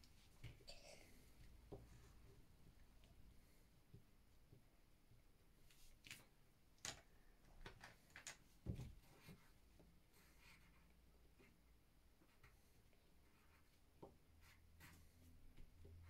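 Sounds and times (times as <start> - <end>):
crayons clicking in plastic tub: 6.8 - 8.4.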